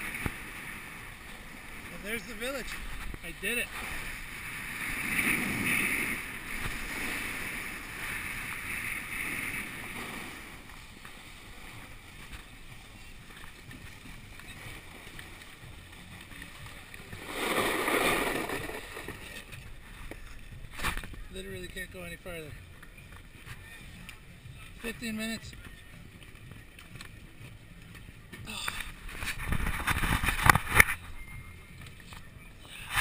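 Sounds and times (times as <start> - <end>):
skis scraping over snow: 0.0 - 24.0.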